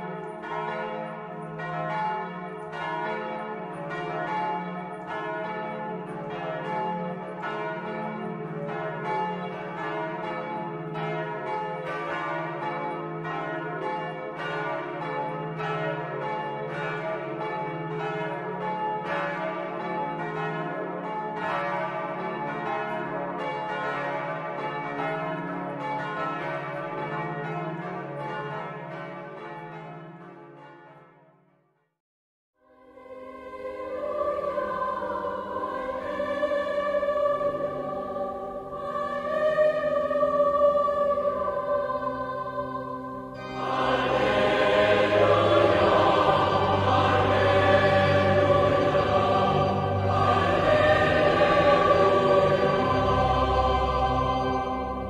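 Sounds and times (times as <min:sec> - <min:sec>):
church bells ringing in a peal: 0:00.0 - 0:31.3, 0:33.0 - 0:55.0.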